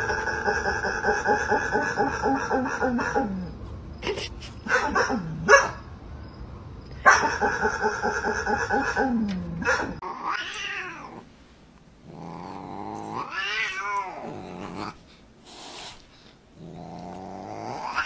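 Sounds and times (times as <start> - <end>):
cat yowling: 13.1 - 14.3.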